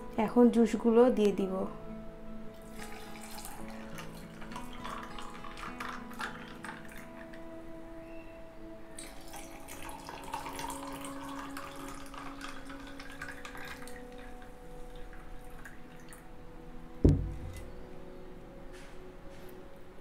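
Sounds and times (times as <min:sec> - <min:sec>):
juice pouring over ice: 0:02.6 - 0:07.4, 0:09.0 - 0:16.2
dull thump: 0:17.0 - 0:17.6.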